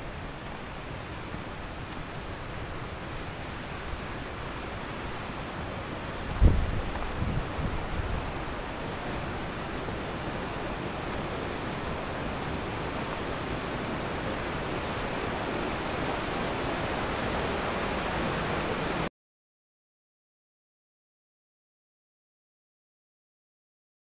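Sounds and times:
water rushing over rocks: 0.0 - 19.1.

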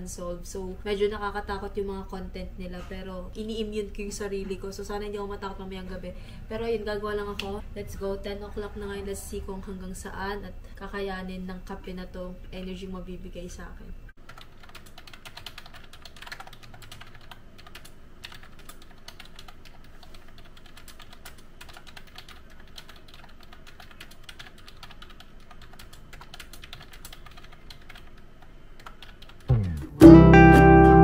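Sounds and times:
brief rising sound: 29.5 - 31.0.

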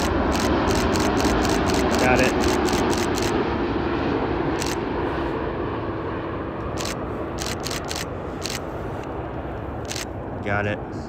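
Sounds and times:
camera shutter clicks: 0.0 - 3.4, 4.6 - 4.8, 6.8 - 8.6, 9.8 - 10.1
jet engines rumbling: 0.0 - 11.0.

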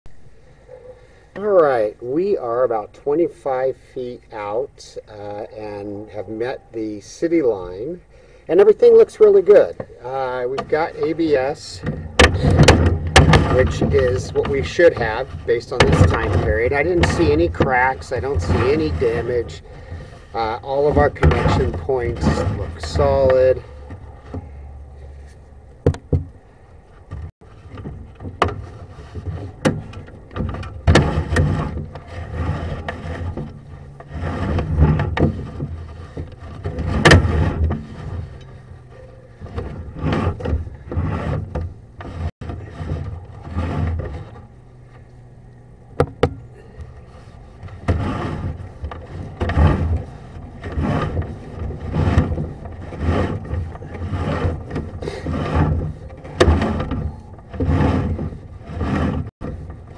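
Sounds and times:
cable scraping inside a pipe: 0.4 - 59.9
sharp knocks: 11.8 - 14.6, 46.0 - 46.5.

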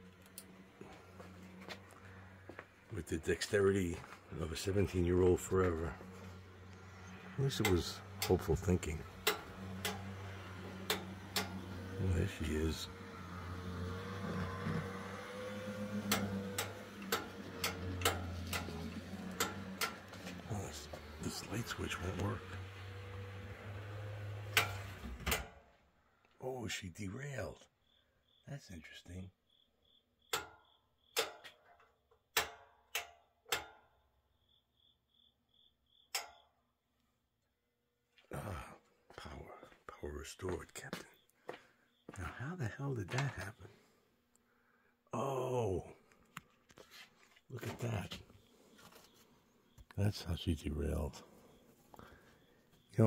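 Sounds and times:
model train motor humming: 0.0 - 25.4
wheels clicking over rail joints: 0.0 - 25.7, 30.3 - 34.0.

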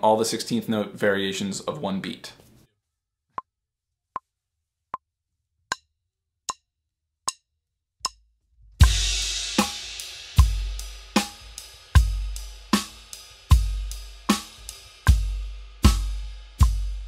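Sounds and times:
drum kit playing: 8.8 - 17.0.

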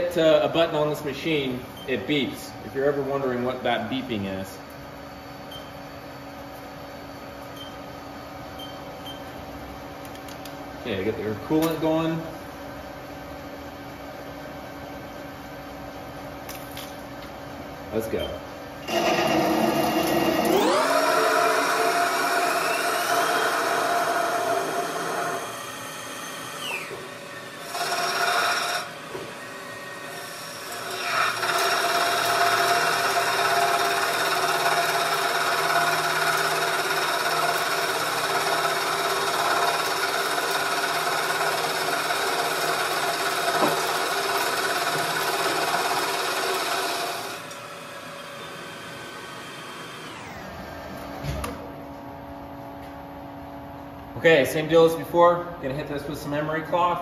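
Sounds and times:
lathe spindle whining: 18.8 - 51.2
cutting tool on metal: 27.6 - 29.2.

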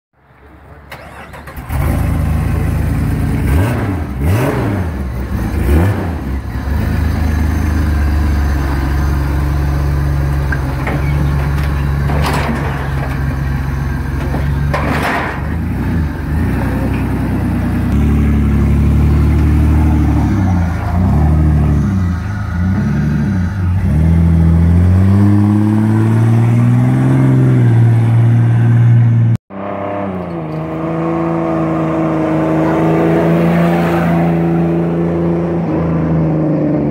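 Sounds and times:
car engine revving: 1.4 - 10.5, 14.4 - 36.9.

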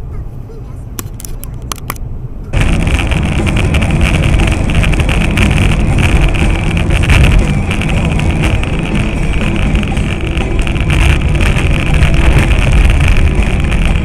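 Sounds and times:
vehicle running noise: 0.0 - 14.0
wind buffeting microphone: 2.5 - 14.0.

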